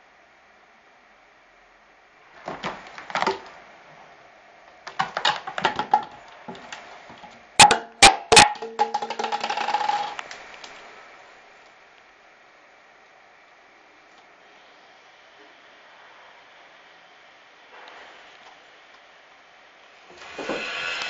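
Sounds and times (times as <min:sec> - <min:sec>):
plastic bottle bouncing on floor: 0:02.4 - 0:03.6, 0:04.9 - 0:10.4
bottle rattling as it rolls: 0:04.9 - 0:10.3.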